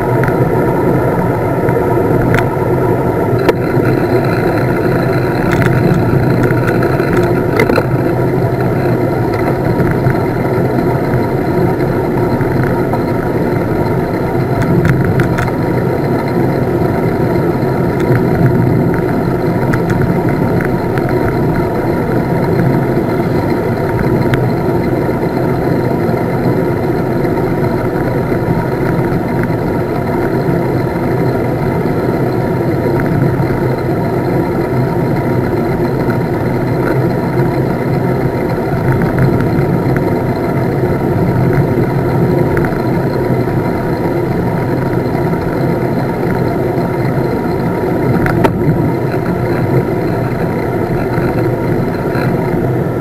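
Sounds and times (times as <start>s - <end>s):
bike tyres on asphalt: 0.0s - 53.0s
wind rushing over microphone: 47.1s - 53.0s.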